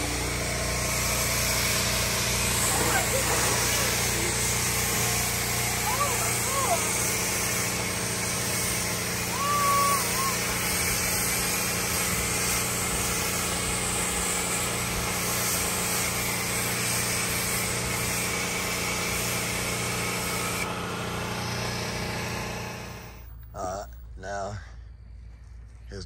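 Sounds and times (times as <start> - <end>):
water spray hissing: 0.0 - 20.7
pressure washer engine humming: 0.0 - 23.8.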